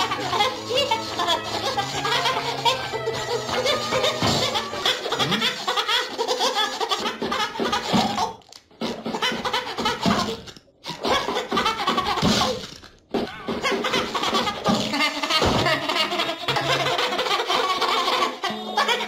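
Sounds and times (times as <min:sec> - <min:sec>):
cartoon voice laughing: 0:00.0 - 0:19.0.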